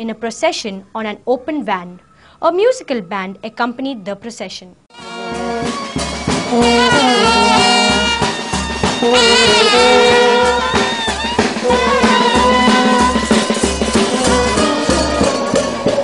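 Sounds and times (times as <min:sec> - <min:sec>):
marching brass band playing: 0:04.9 - 0:16.0
bass drum beat: 0:05.0 - 0:16.0.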